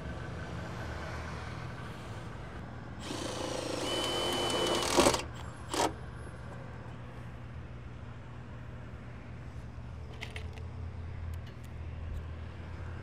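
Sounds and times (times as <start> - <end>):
cordless power drill running: 3.0 - 6.0
drill click: 3.0 - 6.0.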